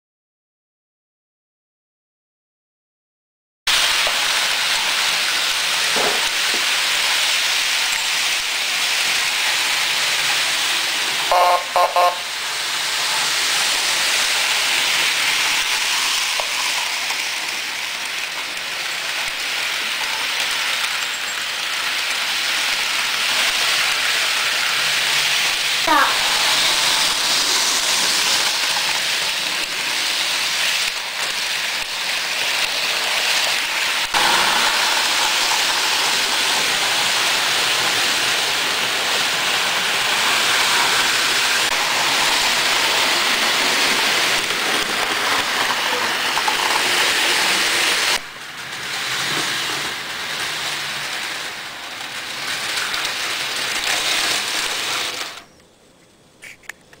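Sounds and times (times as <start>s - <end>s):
model train running on track: 3.7s - 55.6s.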